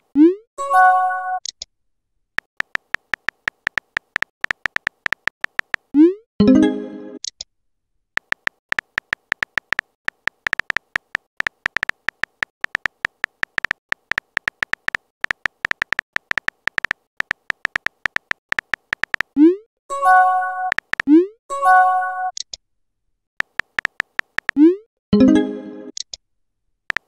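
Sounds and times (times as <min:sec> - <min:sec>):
phone keyboard tap clicks: 0:02.5 - 0:05.9, 0:08.2 - 0:19.4, 0:20.7 - 0:21.1, 0:23.4 - 0:24.6.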